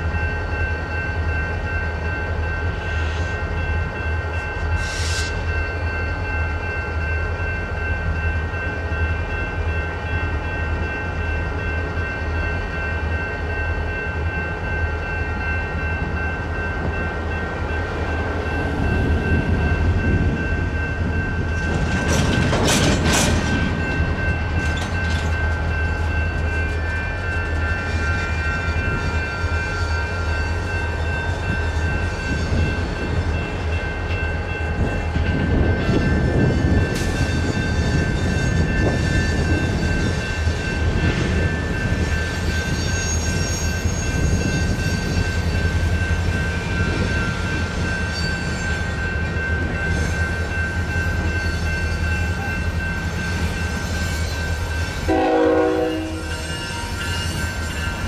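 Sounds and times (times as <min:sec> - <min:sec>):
crossing bell ringing: 0:00.0 - 0:58.0
freight train rumbling: 0:00.0 - 0:58.0
train wheels clacking: 0:18.8 - 0:30.4, 0:31.4 - 0:58.0.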